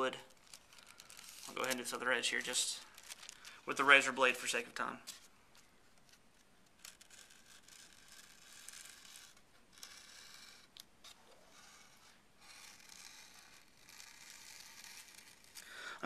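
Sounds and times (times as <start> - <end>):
razor blade scraping paper: 6.8 - 15.6.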